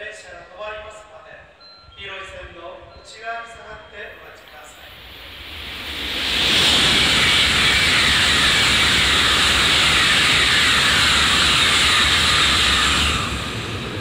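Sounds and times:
high-speed train passing: 0:03.8 - 0:14.0.

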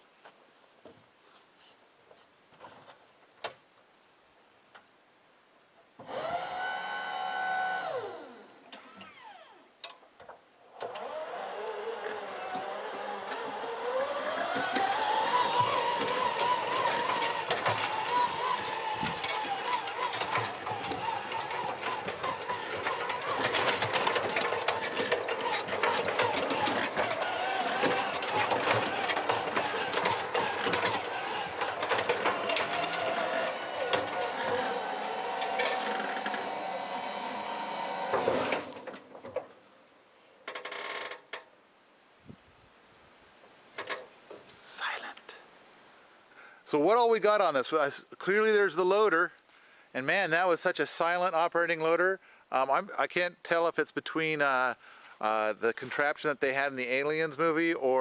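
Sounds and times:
electric motor whine: 0:06.0 - 0:09.6, 0:10.8 - 0:38.9
hydraulic pump whining: 0:06.0 - 0:09.6, 0:10.7 - 0:39.4
clicks and rattles: 0:14.4 - 0:36.5.

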